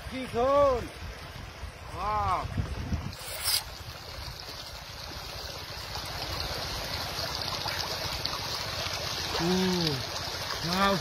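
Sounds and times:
river water rippling over rocks: 0:00.0 - 0:11.0.

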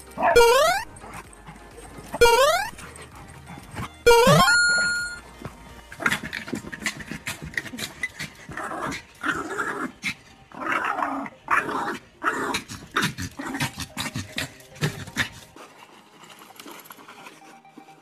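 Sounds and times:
scuffling: 0:04.6 - 0:08.6
dog growling: 0:06.0 - 0:15.6.

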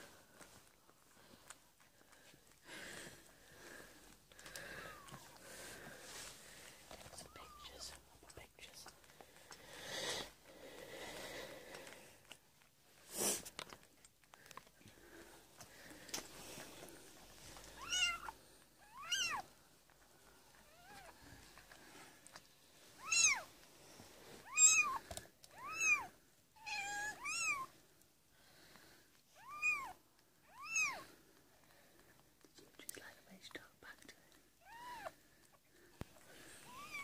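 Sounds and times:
cat mewing: 0:17.8 - 0:18.3, 0:18.9 - 0:19.4.

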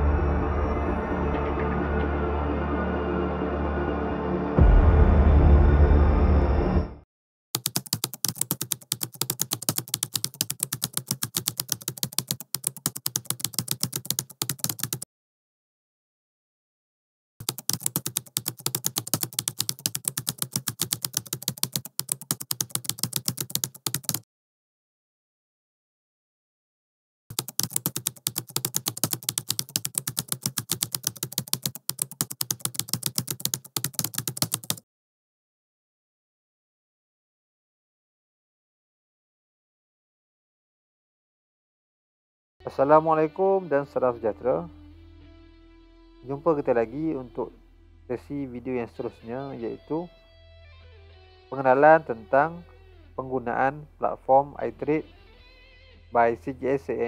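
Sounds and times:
dark ambient music: 0:00.0 - 0:07.0
keyboard typing clicks: 0:07.6 - 0:15.0, 0:17.4 - 0:24.2, 0:27.3 - 0:34.8.

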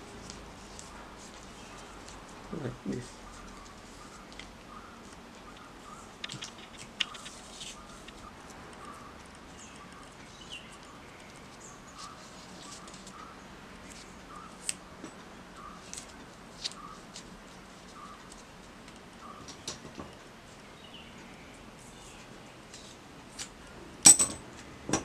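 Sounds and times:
faint bird chirps: 0:01.5 - 0:14.7, 0:15.5 - 0:16.1, 0:16.7 - 0:17.1, 0:17.9 - 0:18.4, 0:19.1 - 0:19.7
paper crinkling: 0:03.0 - 0:09.0, 0:10.0 - 0:14.8.

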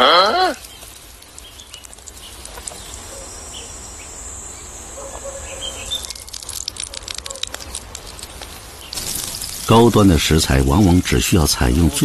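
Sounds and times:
high insect trill: 0:00.4 - 0:12.0
sharp crackling clicks: 0:00.6 - 0:03.2, 0:05.9 - 0:10.3
faint bird chirps: 0:00.6 - 0:07.6.

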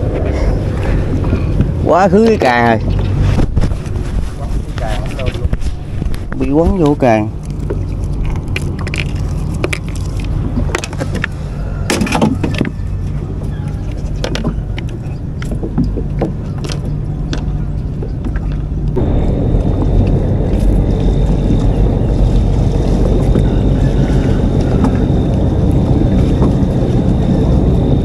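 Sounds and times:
clicks and knocks in plastic boat: 0:04.8 - 0:18.7
faint high whine: 0:18.8 - 0:28.0
rushing noise: 0:19.0 - 0:28.0.

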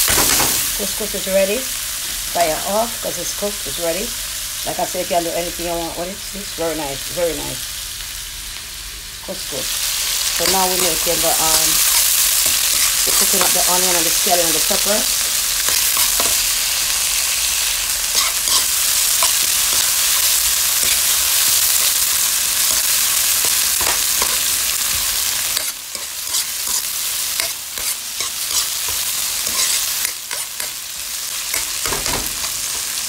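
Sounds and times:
vegetables sizzling in oil: 0:00.0 - 0:33.0
metal spoon scraping a pan: 0:10.2 - 0:24.8, 0:25.4 - 0:33.0.

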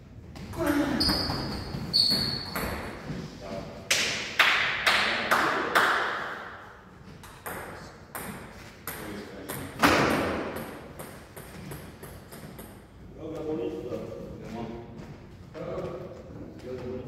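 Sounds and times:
table tennis ball hits: 0:07.2 - 0:12.8.

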